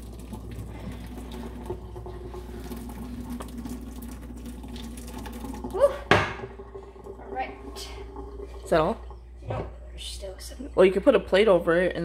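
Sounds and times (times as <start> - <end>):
water pouring into a metal sink: 0.0 - 11.9.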